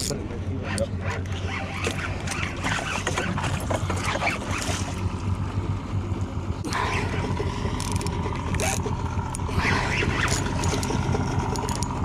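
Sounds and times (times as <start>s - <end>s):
outboard motor humming: 0.0s - 12.0s
fishing reel gears clicking: 7.7s - 12.0s.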